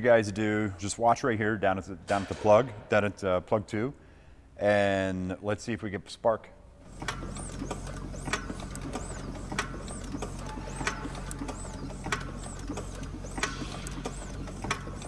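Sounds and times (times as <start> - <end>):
starter motor cranking engine: 6.8 - 15.0.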